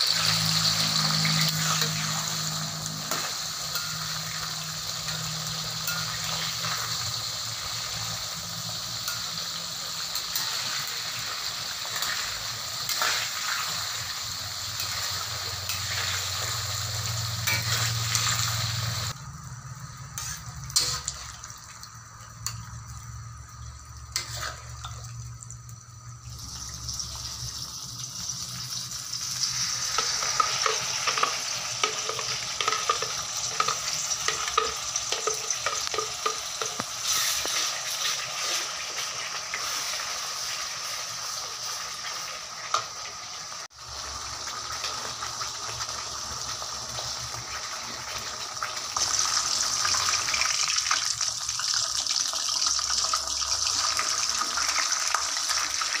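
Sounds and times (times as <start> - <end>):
spatula stirring in a wok: 0.0 - 19.2, 24.1 - 24.7
hot oil sizzling in a wok: 0.0 - 56.0.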